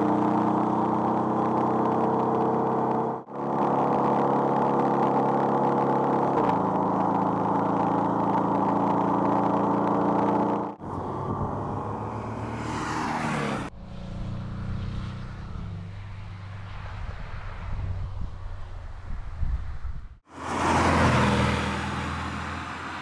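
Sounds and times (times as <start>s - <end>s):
car engine running: 0.0s - 12.7s
car passing by: 10.9s - 19.5s, 20.3s - 23.0s.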